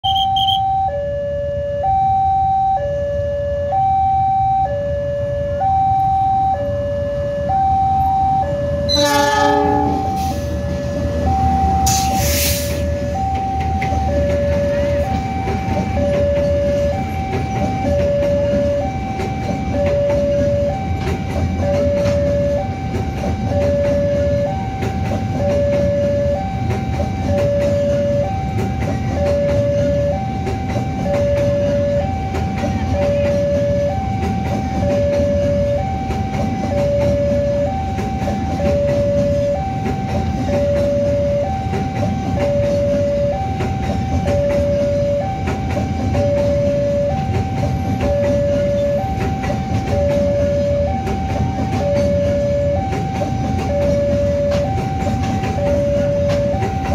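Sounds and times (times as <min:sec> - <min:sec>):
two-tone crossing alarm: 0:00.0 - 0:56.9
train rumbling past: 0:02.6 - 0:56.9
train horn blast: 0:08.8 - 0:10.8.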